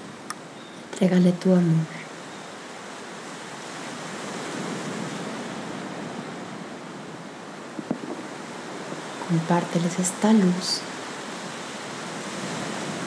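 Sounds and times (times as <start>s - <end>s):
ocean surf: 0.0s - 13.0s.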